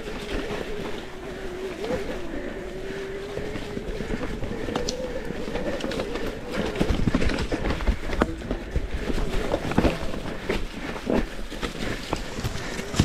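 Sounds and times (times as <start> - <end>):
electric bike motor whine: 0.0 - 7.0
bike rattling over bumps: 0.0 - 13.0
tyre and wind rumble: 0.0 - 13.0.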